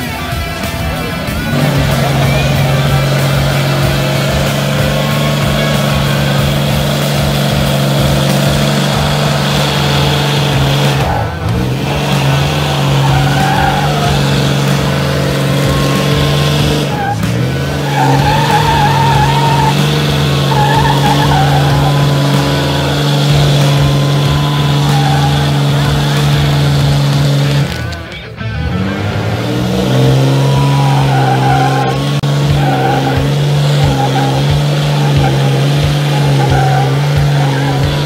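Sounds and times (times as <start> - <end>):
tires spinning on dirt: 0.0 - 38.0
truck engines at high revs: 0.0 - 38.0
wavering squeals: 1.3 - 27.7, 29.9 - 38.0.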